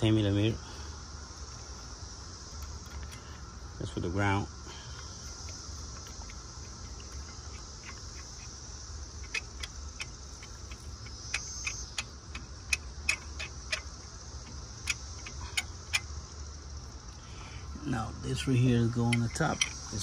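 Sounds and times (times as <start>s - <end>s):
steady low hum: 0.0s - 20.0s
sharp metallic clicks: 5.3s - 16.2s, 18.9s - 20.0s.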